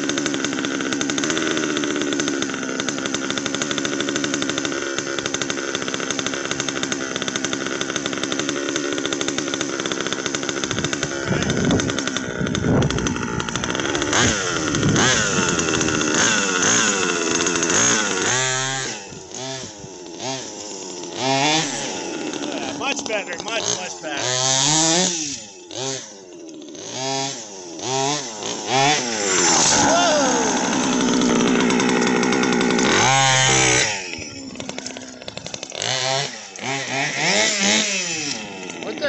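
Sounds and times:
two-stroke engine revving: 0.0 - 39.0.

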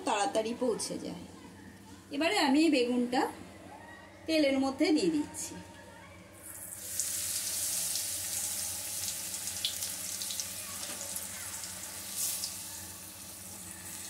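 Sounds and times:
eggplant sizzling in hot oil: 6.5 - 14.0.

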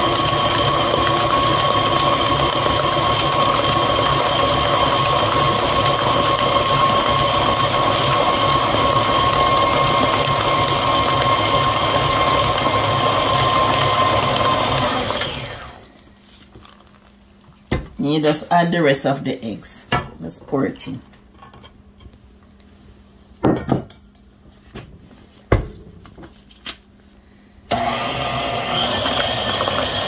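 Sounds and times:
stand mixer motor humming: 0.0 - 15.8, 27.7 - 30.0
beater turning through thick batter: 0.0 - 15.9, 27.7 - 30.0.

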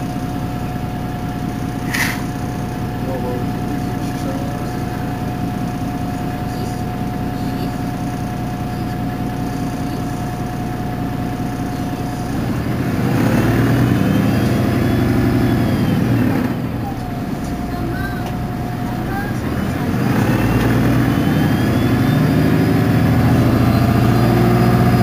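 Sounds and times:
thin steady whine: 0.0 - 12.8
bus diesel engine idling: 0.0 - 25.0
louder engine passing: 12.4 - 17.0, 19.0 - 25.0.

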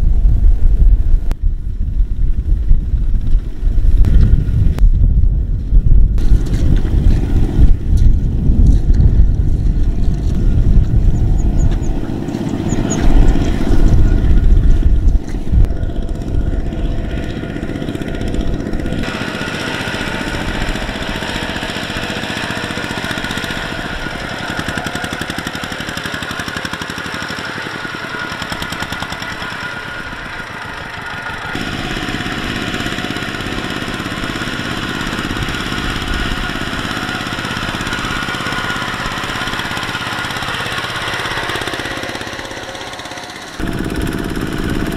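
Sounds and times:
wind rumble on microphone: 0.0 - 19.1
diesel engines chugging: 6.2 - 44.9.

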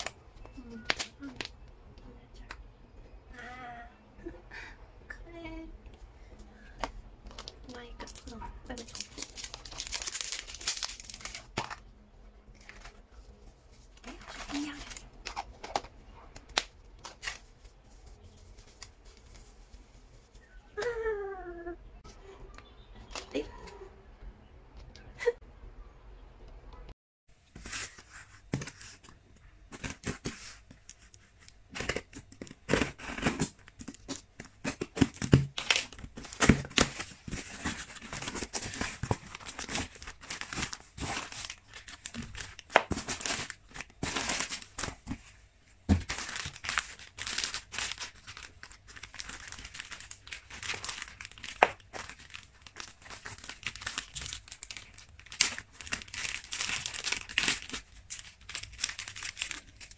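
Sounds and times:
plastic bags crinkling: 7.3 - 11.9, 12.5 - 20.5, 31.7 - 59.9.

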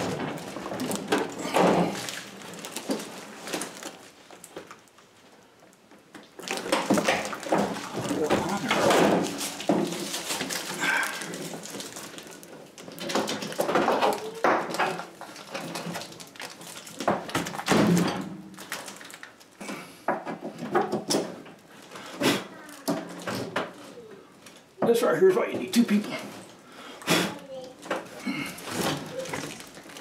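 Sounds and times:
plastic wrap crinkling: 0.0 - 19.6, 21.6 - 23.2, 27.5 - 30.0.

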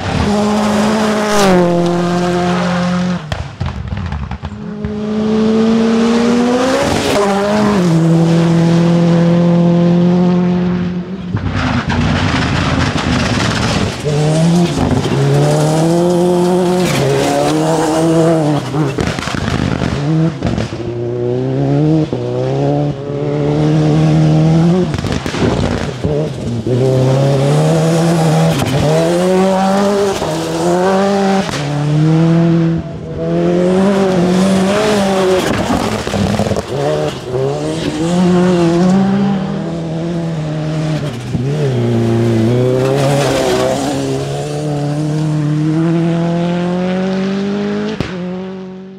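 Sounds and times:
rally car engine revving: 0.0 - 48.9
tyres on gravel: 11.4 - 20.6.

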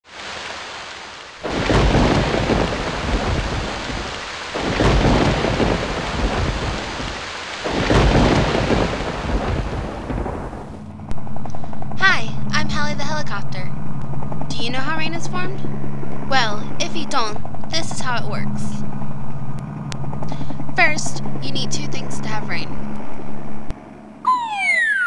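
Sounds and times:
rain falling: 0.0 - 10.9
thunder rolling: 1.4 - 11.4
helicopter rotor drone: 8.2 - 25.0.

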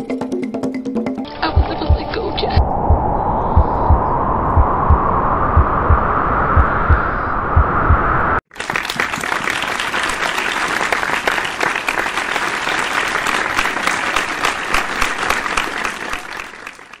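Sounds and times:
hands clapping: 8.5 - 17.0.

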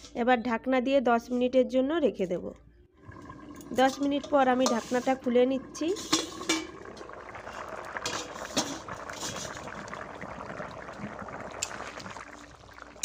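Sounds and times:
curry bubbling in a pan: 3.0 - 13.0.

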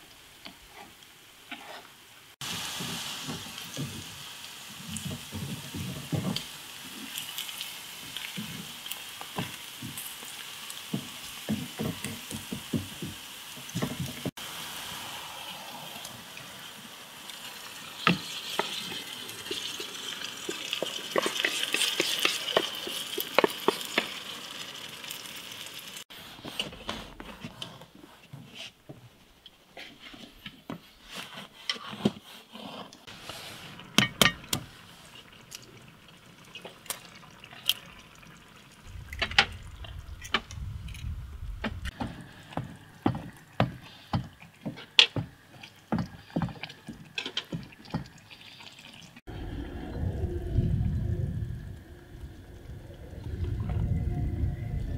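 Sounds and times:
food frying hiss: 0.0 - 26.1, 33.0 - 49.3.

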